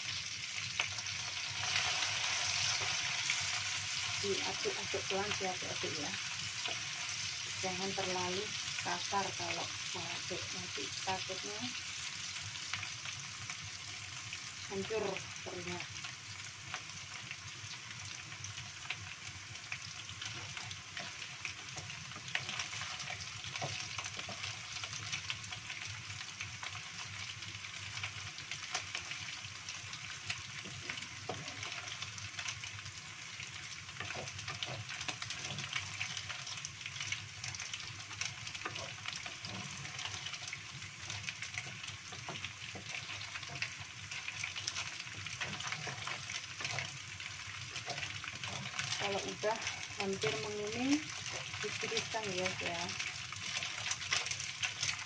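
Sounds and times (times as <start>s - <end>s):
food sizzling in oil: 0.0s - 55.0s
wooden spatula scraping wok: 30.4s - 32.1s, 33.9s - 55.0s.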